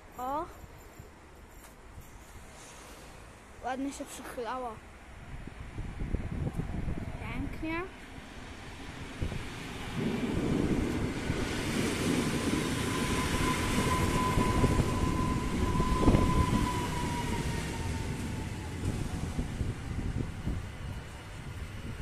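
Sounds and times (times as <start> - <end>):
train wheels rumbling on rails: 8.1 - 22.0.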